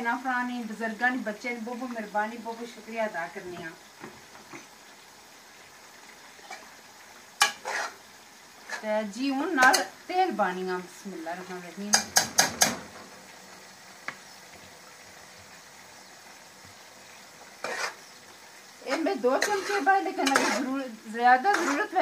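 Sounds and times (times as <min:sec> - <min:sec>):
faint sizzle of frying: 0:00.0 - 0:22.0
metal spoon scraping a pot: 0:07.4 - 0:08.0, 0:08.6 - 0:08.9, 0:17.6 - 0:18.1, 0:18.8 - 0:22.0.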